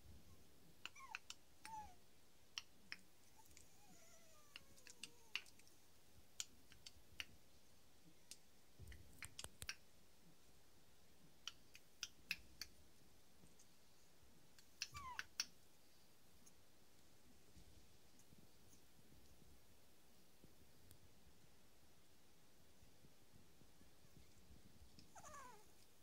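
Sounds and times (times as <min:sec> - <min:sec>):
puppy squeak: 0:00.9 - 0:02.0, 0:14.8 - 0:15.2
puppies chewing clicks and smacks: 0:04.5 - 0:05.8.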